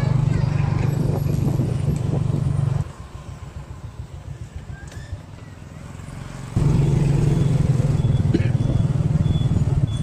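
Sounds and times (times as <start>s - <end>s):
street traffic rumble: 0.0s - 10.0s.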